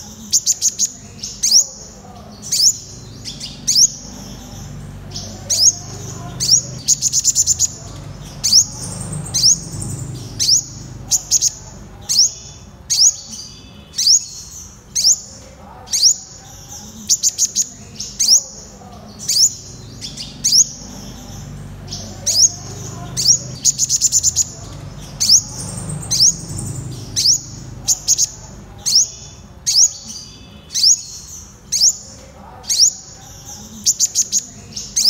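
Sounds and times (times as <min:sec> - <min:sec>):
bird calling with rising notes: 0:02.4 - 0:13.1, 0:19.2 - 0:29.9
rapid run of bird notes: 0:02.5 - 0:12.7, 0:19.4 - 0:29.4.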